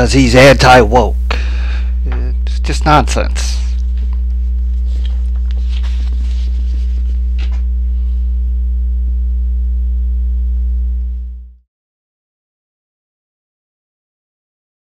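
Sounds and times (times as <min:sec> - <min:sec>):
electrical mains hum: 0:00.0 - 0:11.6
paperback book rustling: 0:03.7 - 0:07.7.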